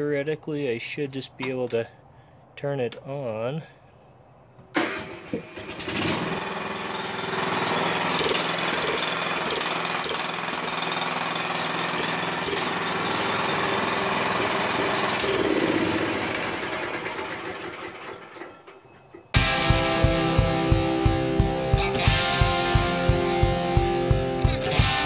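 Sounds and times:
starter motor cranking: 4.8 - 19.9
small engine running: 5.0 - 18.6, 19.4 - 25.0.

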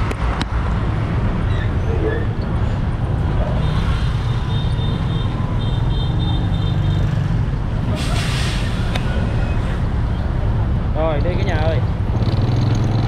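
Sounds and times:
motorbikes passing: 0.0 - 8.0, 8.9 - 13.0
truck diesel engines idling: 7.5 - 11.9.

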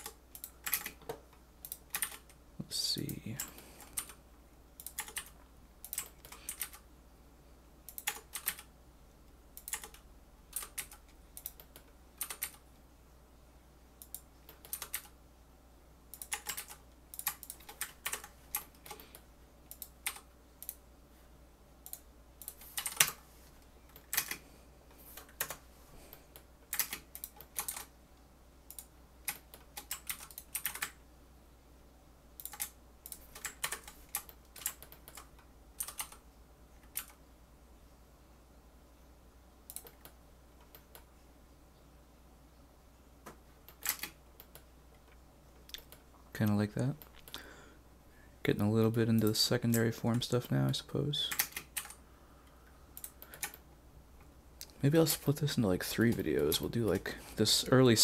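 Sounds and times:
keyboard keys clicking: 0.0 - 2.4, 4.8 - 6.8, 9.6 - 12.6, 14.0 - 15.1, 16.2 - 19.1, 28.7 - 31.0
low fan hum: 35.2 - 58.0.

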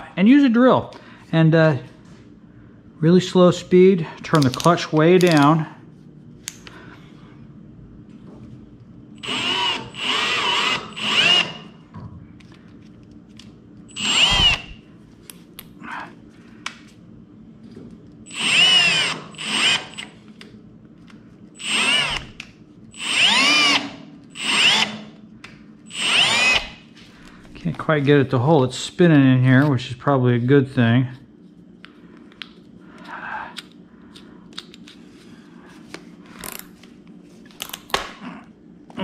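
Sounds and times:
cordless drill motor whine: 9.2 - 11.8, 13.9 - 14.8, 18.3 - 20.2, 21.6 - 25.1, 25.9 - 26.8.

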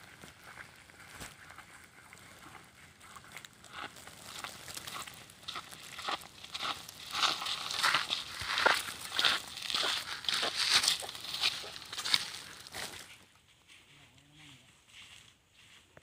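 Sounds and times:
footsteps on dry grass: 0.0 - 16.0.

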